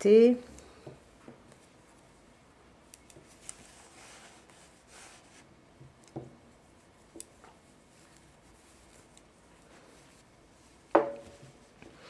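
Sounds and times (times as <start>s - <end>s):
yarn rubbing: 1.0s - 12.0s
knitting needles clicking: 2.8s - 3.6s, 7.1s - 8.3s.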